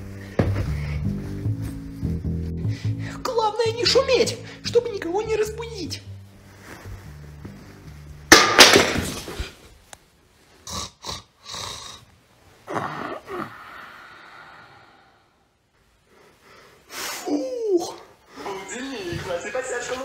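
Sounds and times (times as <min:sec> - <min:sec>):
man snoring loudly: 0:12.7 - 0:14.7
short breathy puffs: 0:16.0 - 0:17.3.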